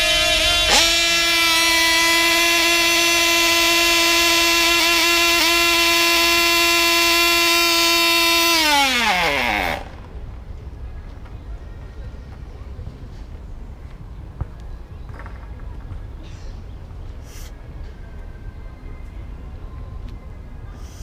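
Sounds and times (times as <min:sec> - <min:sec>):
model aircraft engine running: 0:00.0 - 0:10.1.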